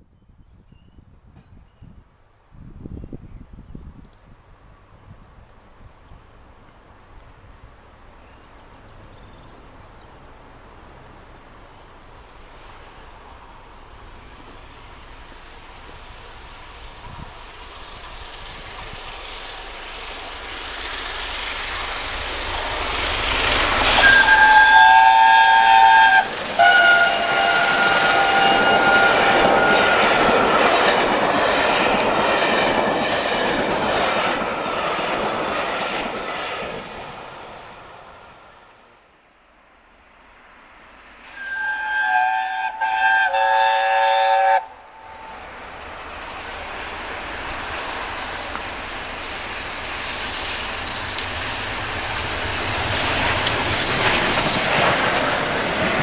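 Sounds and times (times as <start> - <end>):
steam locomotive approaching: 4.4 - 39.2, 39.8 - 56.0
steam locomotive chime whistle: 23.8 - 30.1, 41.3 - 45.4.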